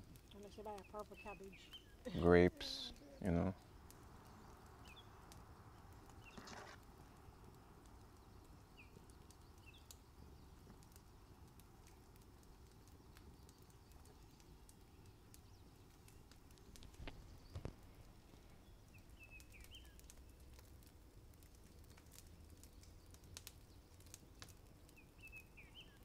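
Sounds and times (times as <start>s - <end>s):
faint bird chirps: 18.5s - 20.4s, 24.8s - 26.0s.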